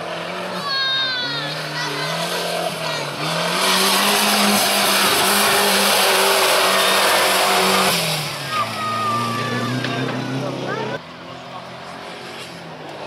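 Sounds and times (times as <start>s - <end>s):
race car engine running hard: 1.3s - 13.0s
loud rushing noise: 2.2s - 10.6s.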